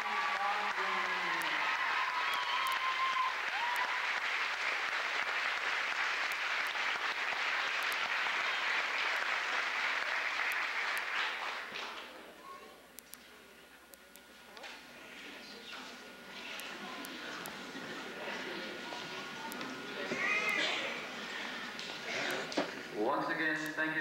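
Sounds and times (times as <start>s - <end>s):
crowd applauding: 0.0s - 12.2s.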